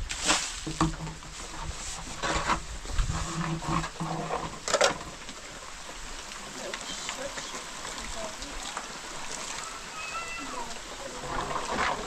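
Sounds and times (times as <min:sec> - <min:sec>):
rain hissing: 0:00.0 - 0:12.0
low drawn-out animal calls: 0:09.3 - 0:12.0.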